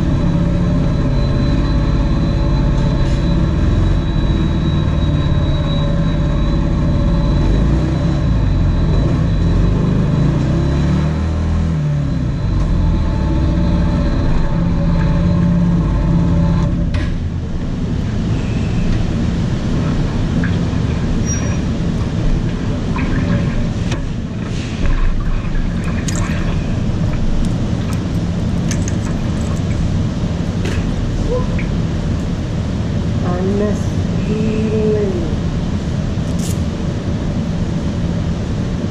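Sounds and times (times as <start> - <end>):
rough rumbling noise: 0.0 - 38.9
scattered clicks: 27.4 - 29.8.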